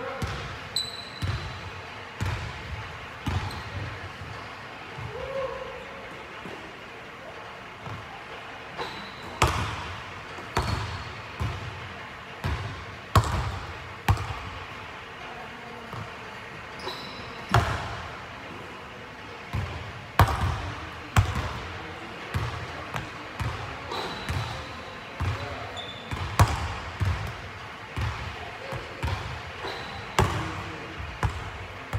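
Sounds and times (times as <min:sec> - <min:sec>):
basketball bouncing on hardwood floor: 0:12.4 - 0:14.4.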